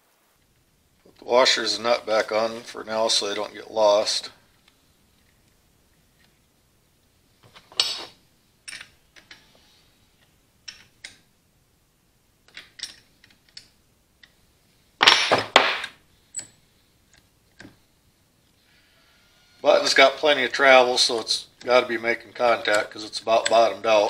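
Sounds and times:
metallic clicks and clanks: 22.5s - 24.0s.

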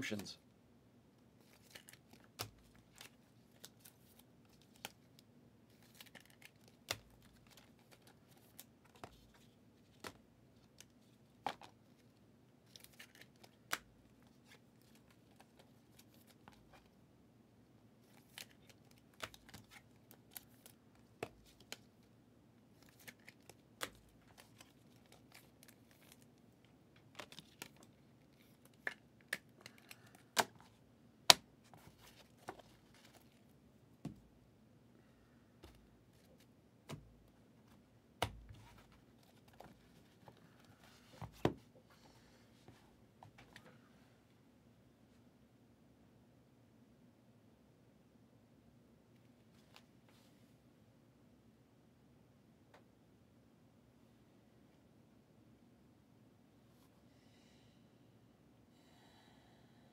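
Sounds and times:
trading cards clicking and rustling: 18.1s - 21.9s.

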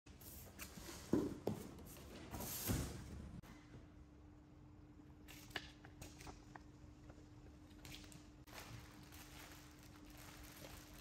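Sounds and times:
faint steady hum: 3.2s - 11.0s
rustling of things handled: 7.8s - 11.0s.

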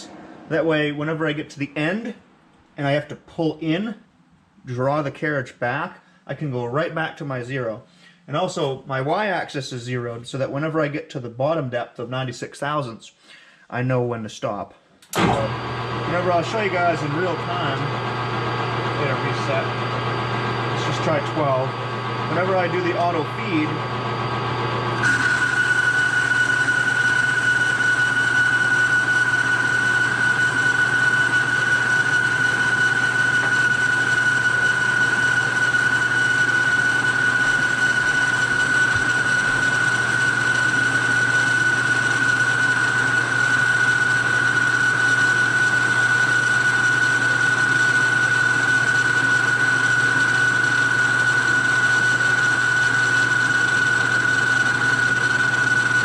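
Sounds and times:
low hum: 0.0s - 1.2s
lathe whining: 15.0s - 56.0s.

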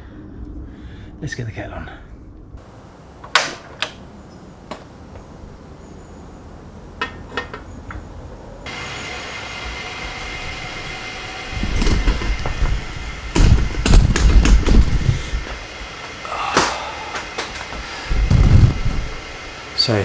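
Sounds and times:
gas flame hissing: 8.6s - 20.0s
loud low rumble: 16.2s - 19.6s.

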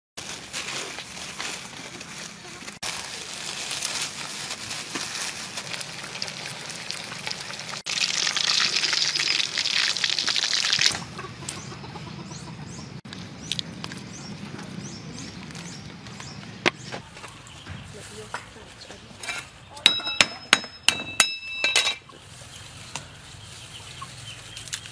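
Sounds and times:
plastic sheet crinkling: 0.2s - 8.1s
small birds chirping: 10.7s - 19.8s, 22.0s - 24.9s.

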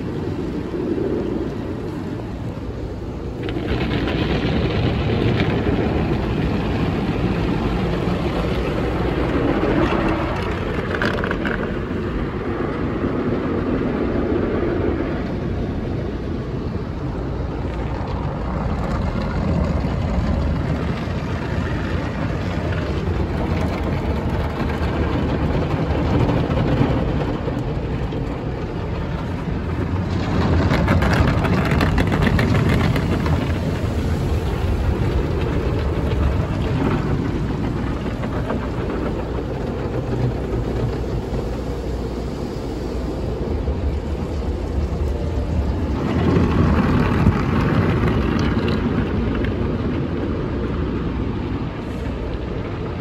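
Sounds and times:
car wash rushing water: 0.0s - 53.0s
water spraying onto windows: 0.0s - 53.0s.

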